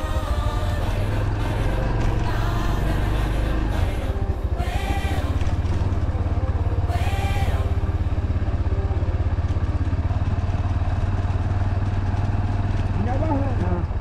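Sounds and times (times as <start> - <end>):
small motorcycle engine running: 0.0 - 14.0.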